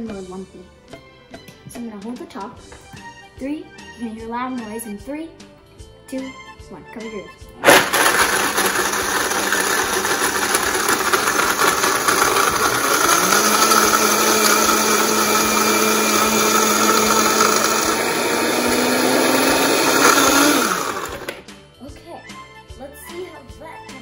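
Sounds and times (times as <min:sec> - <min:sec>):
blender crushing ice: 0:07.6 - 0:21.4.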